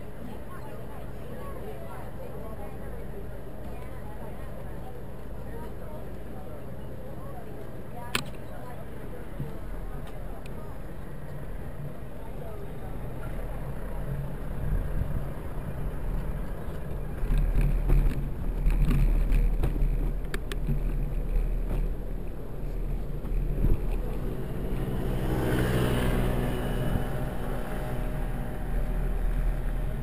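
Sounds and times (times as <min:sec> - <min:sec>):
road noise: 0:00.0 - 0:30.0
wind rumble: 0:08.8 - 0:30.0
motor scooter engine passing: 0:12.9 - 0:30.0.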